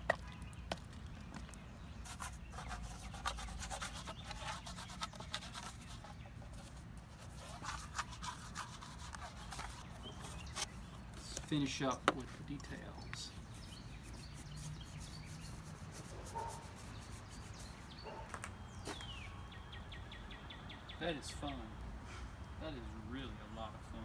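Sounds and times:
paintbrush scrubbing thick paint: 2.0s - 18.0s.

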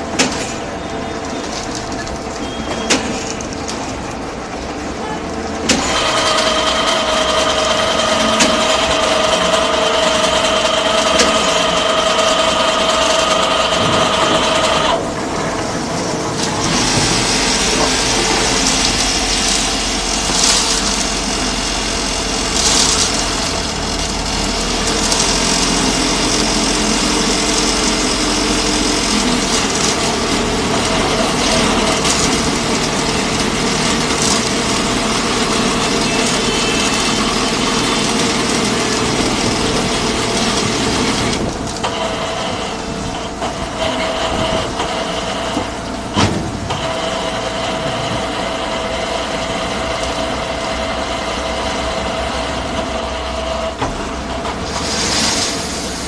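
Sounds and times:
concrete mixer running: 0.0s - 56.0s
rough noisy machine sound: 0.0s - 56.0s
steady machine whine: 0.0s - 56.0s
gravel tipping into mixer: 16.4s - 41.7s.

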